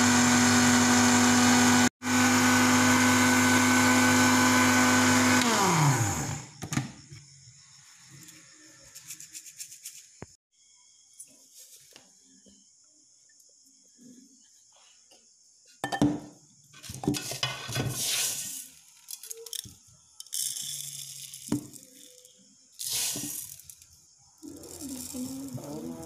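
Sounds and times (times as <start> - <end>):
rice grains rattling into jar: 18.0 - 23.9, 24.5 - 25.6.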